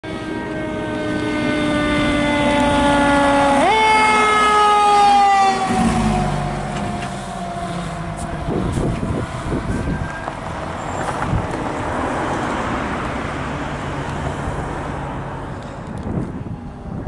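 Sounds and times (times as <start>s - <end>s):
fire engine horn: 0.0s - 10.5s
truck engine running: 5.6s - 11.5s.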